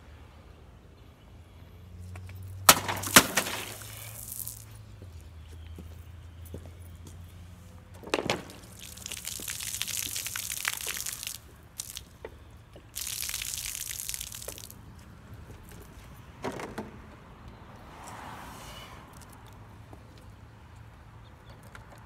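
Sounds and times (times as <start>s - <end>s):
water pouring and splashing: 2.7s - 4.7s, 8.1s - 12.2s, 12.9s - 14.8s.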